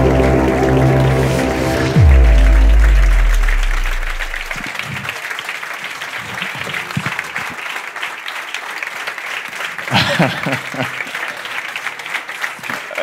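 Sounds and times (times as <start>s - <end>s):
deep bass stage music: 0.0s - 4.6s
audience applauding: 0.0s - 13.0s.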